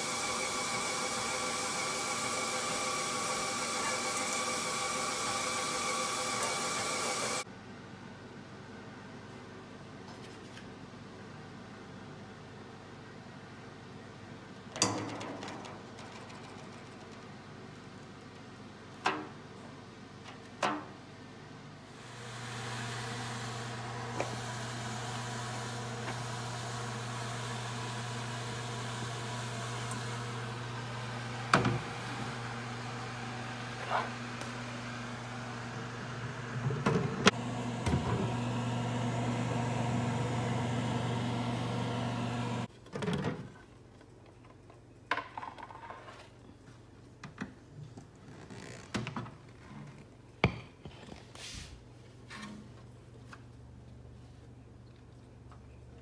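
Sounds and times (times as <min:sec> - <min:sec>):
electric appliance hum: 0:00.0 - 0:07.5, 0:21.9 - 0:42.7.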